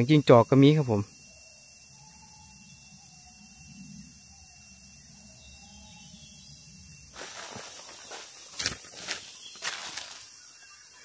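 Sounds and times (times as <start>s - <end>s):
faint wavering animal calls: 1.0s - 7.0s.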